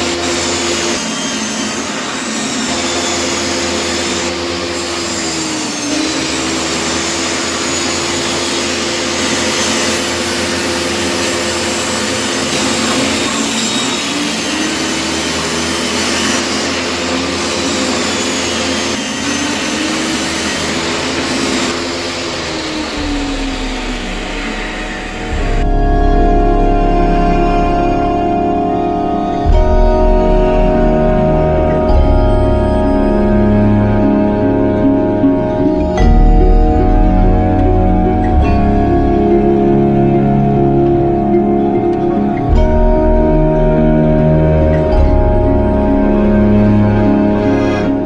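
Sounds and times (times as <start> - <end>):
table saw cutting wood: 0.0 - 48.0.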